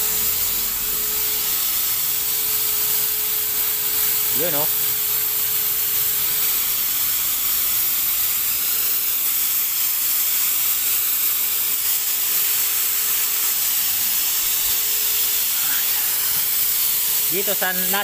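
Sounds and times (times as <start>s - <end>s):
motor tone: 0.0s - 5.8s
electric paint sprayer hissing: 0.0s - 18.0s.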